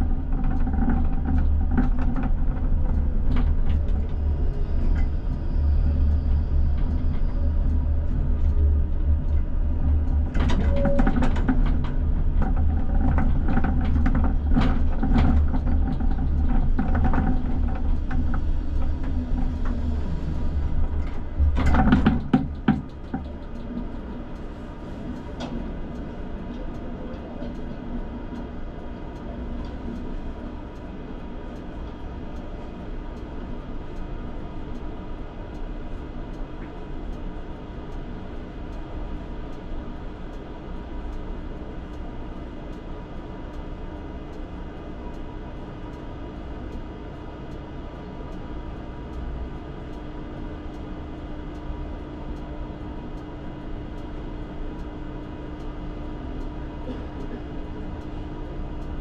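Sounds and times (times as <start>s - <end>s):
tram running on track: 0.0s - 59.0s
faint regular ticking: 22.5s - 59.0s.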